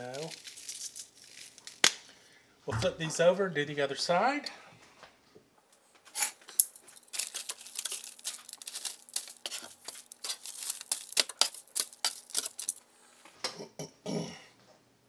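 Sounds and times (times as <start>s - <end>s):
parchment paper crinkling: 0.0s - 2.0s, 6.8s - 12.8s.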